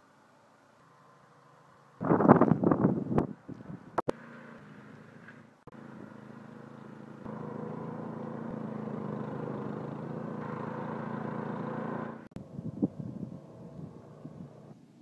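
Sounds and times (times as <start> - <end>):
snowblower engine running: 4.1 - 12.4, 13.4 - 14.8.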